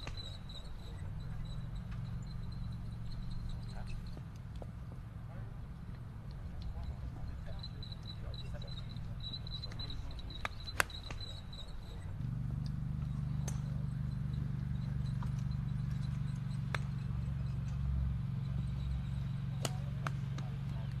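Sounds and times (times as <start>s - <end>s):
steady low hum: 0.0s - 21.0s
golf balls being struck: 8.5s - 11.5s, 12.1s - 17.9s, 19.5s - 21.0s.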